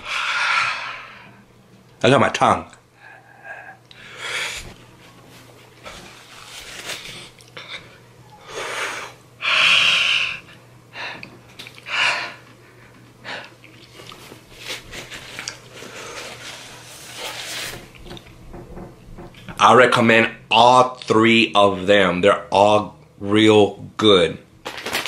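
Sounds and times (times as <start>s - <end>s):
man breathing hard: 0.0s - 1.4s, 3.0s - 4.8s, 7.6s - 13.6s.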